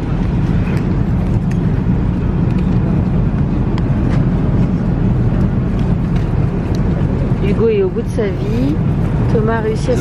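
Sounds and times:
airliner cabin drone: 0.0 - 10.0.

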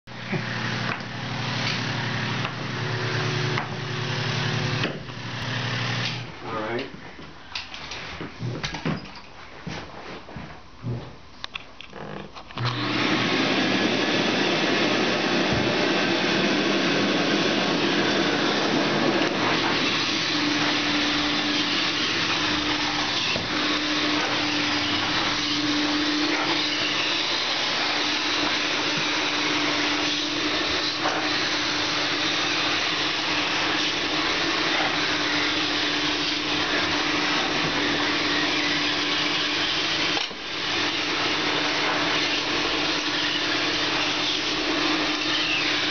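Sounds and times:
carpet extractor vacuum running: 0.1 - 6.4, 12.6 - 45.9.

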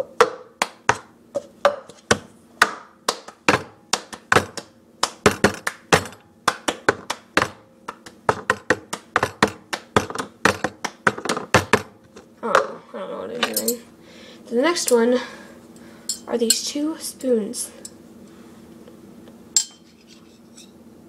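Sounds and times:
hand claps: 0.2 - 1.1, 2.6 - 11.8
plastic cup knocking: 8.3 - 11.9.

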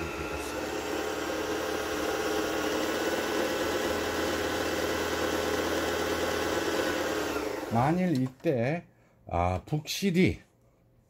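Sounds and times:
sewing machine motor running: 0.0 - 8.0.

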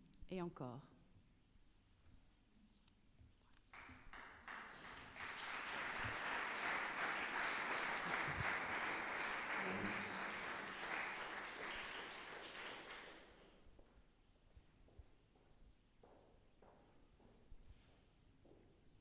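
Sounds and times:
audience applauding: 3.7 - 13.5.

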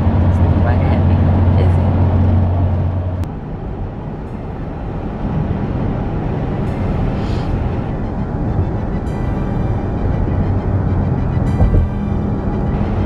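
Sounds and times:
car cabin road and engine drone: 0.0 - 13.0
low rumble: 9.4 - 13.0.

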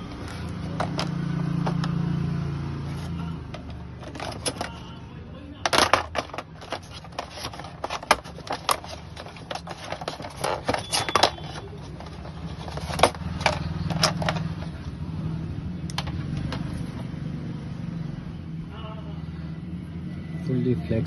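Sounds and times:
plastic box handling clicks and rattles: 0.0 - 2.0, 3.0 - 4.9, 5.6 - 14.8.

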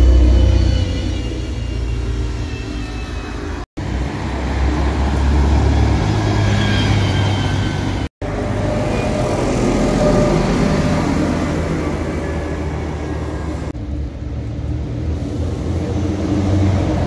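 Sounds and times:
buses passing with engine rumble: 0.0 - 17.0.

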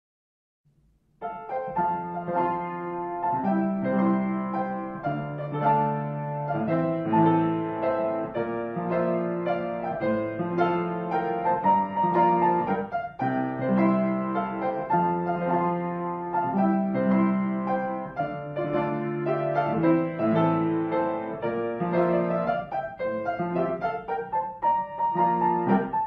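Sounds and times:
piano music: 1.2 - 26.0.

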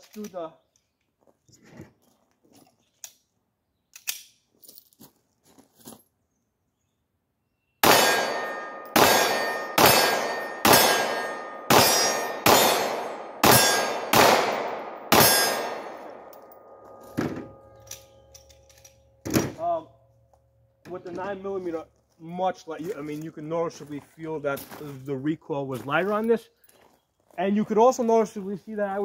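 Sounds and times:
pistol shots: 7.8 - 16.3.

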